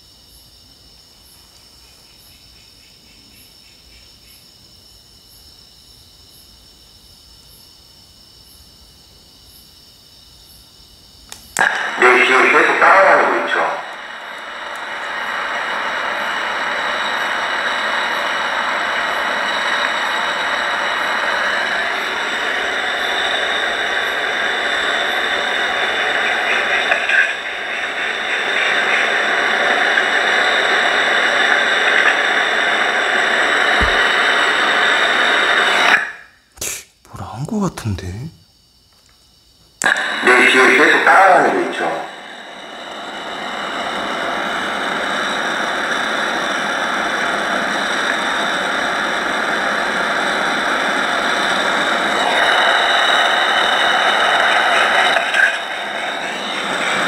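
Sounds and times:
crickets chirping: 0.0 - 57.0
steady high-pitched hum: 0.0 - 57.0
steady static hiss: 0.0 - 57.0.

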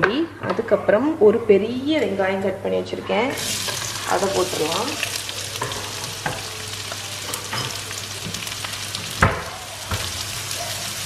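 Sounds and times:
onions sizzling in hot oil: 3.3 - 11.0.

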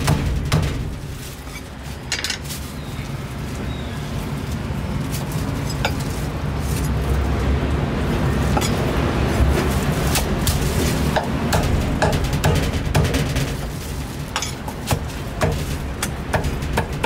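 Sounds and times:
scattered clicks and knocks: 10.5 - 17.0.

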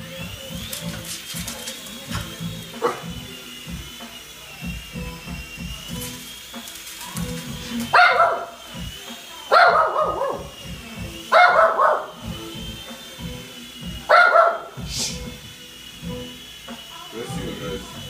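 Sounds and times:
dog barking: 2.8 - 3.2, 7.9 - 8.6, 9.5 - 10.5, 11.3 - 12.1, 14.1 - 14.8.

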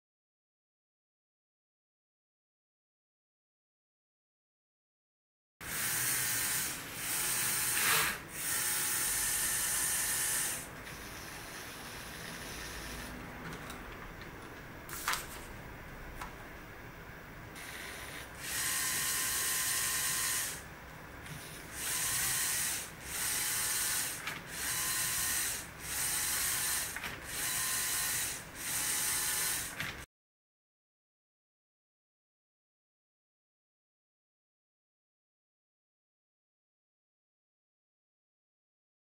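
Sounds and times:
motors and plastic gears whirring: 5.6 - 13.5, 17.6 - 20.6, 21.2 - 30.1.

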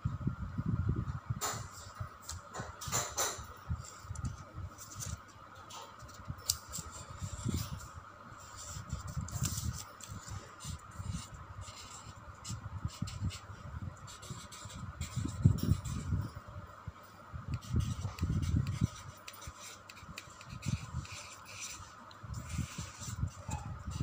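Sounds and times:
faint high hum: 0.0 - 24.0
marker scratching on paper: 5.9 - 16.1, 17.6 - 24.0.

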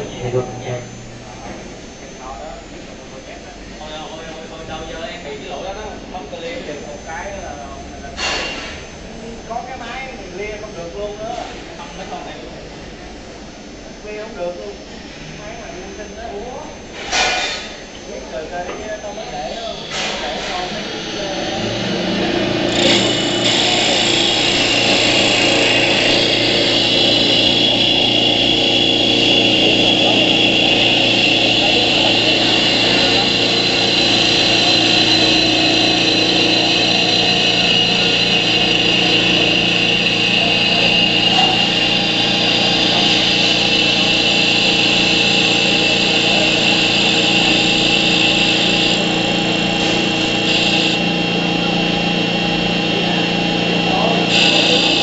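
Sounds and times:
high machine whine: 0.0 - 55.0
wood lathe cutting: 20.7 - 55.0.

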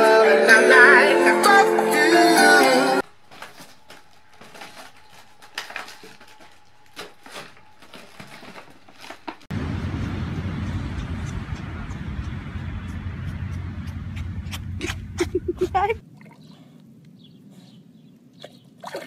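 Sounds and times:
light taps and crinkles: 3.0 - 9.5
wind buffeting microphone: 9.5 - 16.0.

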